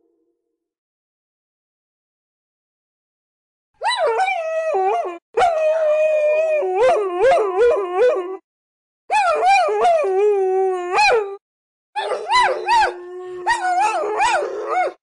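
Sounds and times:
dogs howling and yipping: 3.8s - 8.4s, 9.1s - 11.4s, 12.0s - 15.0s.

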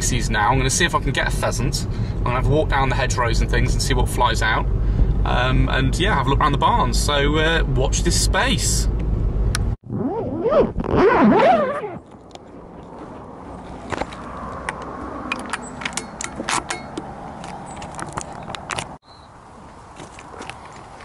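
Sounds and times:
fabric rubbing: 9.9s - 12.0s
loud squealing: 9.9s - 12.1s.

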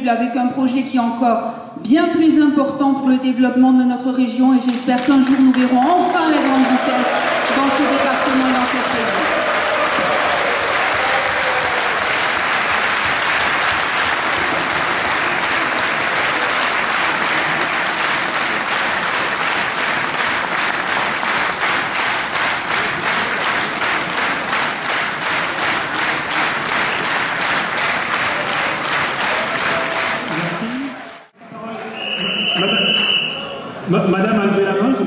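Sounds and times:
audience applauding: 4.7s - 31.4s.

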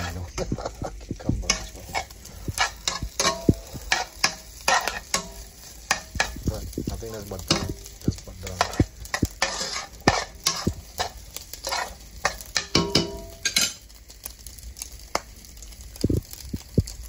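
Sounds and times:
metal spoon scraping a frying pan: 0.0s - 0.8s, 1.4s - 6.8s, 7.4s - 13.9s
light sizzle of frying: 0.0s - 17.0s.

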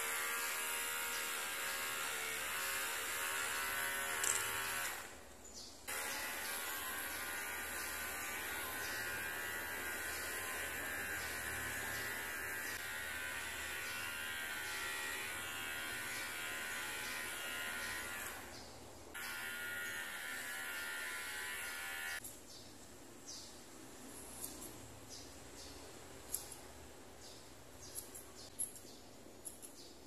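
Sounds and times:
electric hair clipper buzzing: 0.0s - 5.2s, 5.9s - 22.2s.

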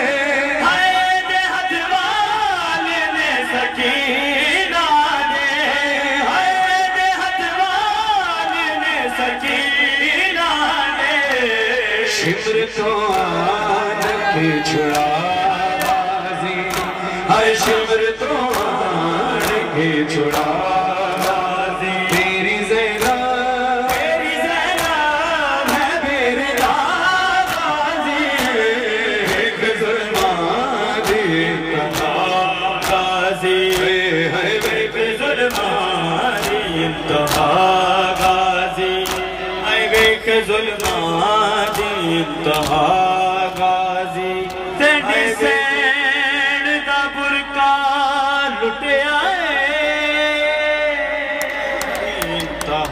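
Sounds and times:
man and chorus chanting lament: 0.0s - 52.9s
people beating their chests: 11.2s - 45.4s, 51.4s - 52.9s.

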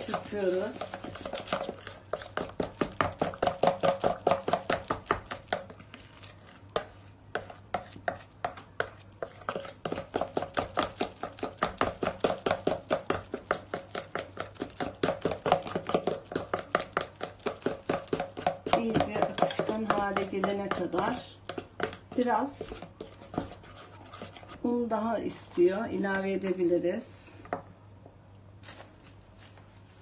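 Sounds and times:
whisk clicking against bowl: 9.9s - 22.8s.

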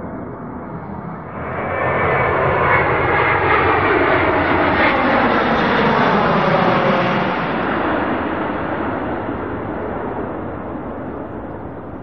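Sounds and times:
jet airliner passing overhead: 0.0s - 12.0s.

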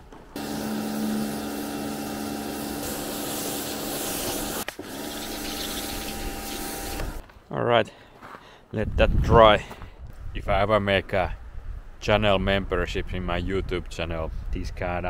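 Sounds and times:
motor pump hum: 0.4s - 7.2s
pressure washer spraying water: 0.4s - 7.2s.

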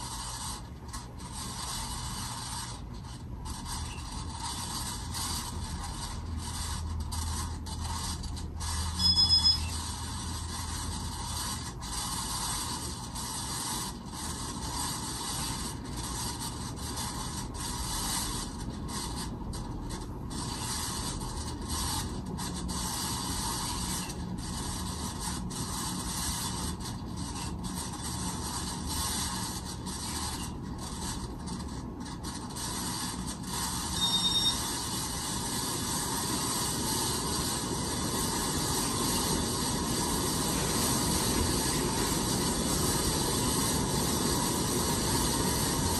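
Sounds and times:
ceiling fan grinding: 0.0s - 45.9s
high-pitched tones: 9.0s - 9.8s.

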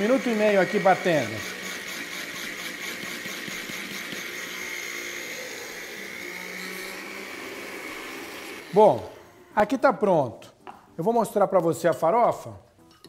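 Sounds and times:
blender grinding seeds: 0.0s - 9.6s.

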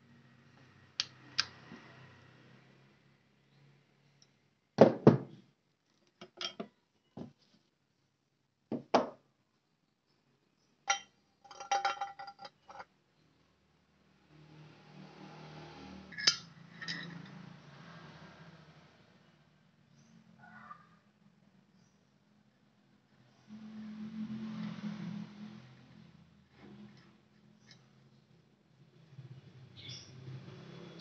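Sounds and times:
metal tools clinking: 10.9s - 12.9s, 16.1s - 17.4s.

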